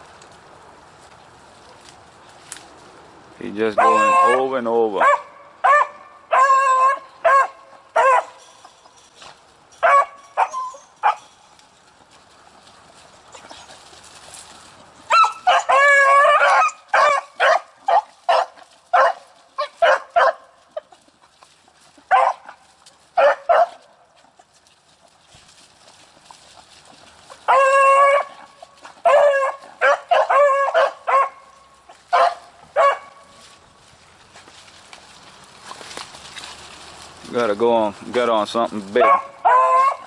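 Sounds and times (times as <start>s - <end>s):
hounds barking and yipping: 3.7s - 11.5s, 13.2s - 33.5s, 38.8s - 40.0s.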